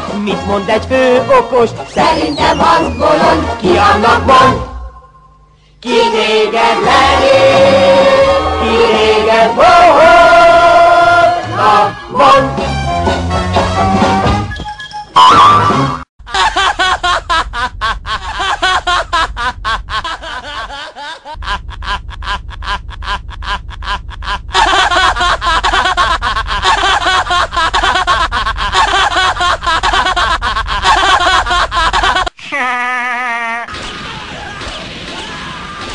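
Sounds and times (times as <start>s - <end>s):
man laughing maniacally: 15.4s - 33.7s.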